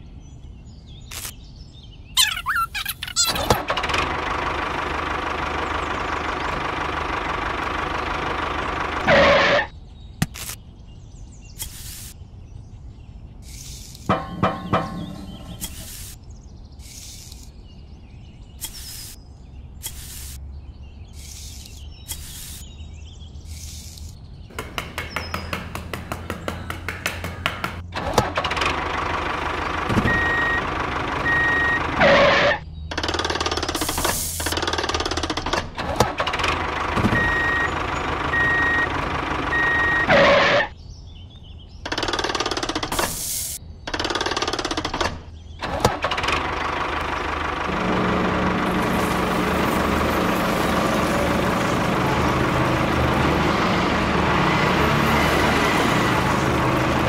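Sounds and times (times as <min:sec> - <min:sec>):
tractor engine running: 0:02.2 - 0:09.7, 0:14.1 - 0:15.9, 0:23.5 - 0:40.7, 0:43.9 - 0:57.0.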